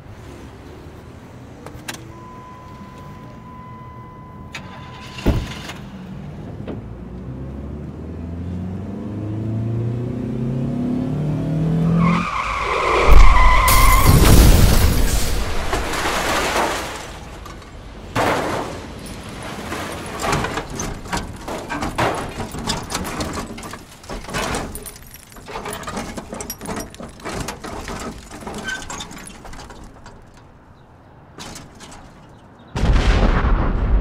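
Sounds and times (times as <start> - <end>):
car crash crunches and clatter: 4.5 - 6.0, 12.2 - 34.0
loud explosion blast: 13.0 - 16.1, 32.8 - 34.0.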